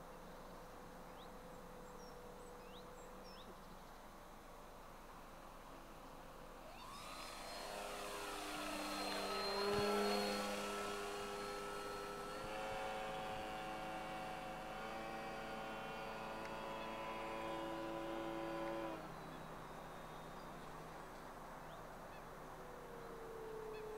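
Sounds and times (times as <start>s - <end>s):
model plane motor whining: 6.6s - 20.4s.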